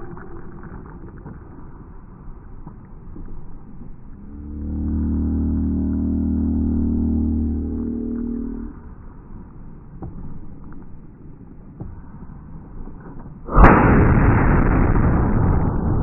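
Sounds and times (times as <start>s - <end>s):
quiet outdoor background: 0.0s - 16.0s
loud rumbling: 4.3s - 9.0s, 13.5s - 16.0s
cannon boom: 13.5s - 16.0s.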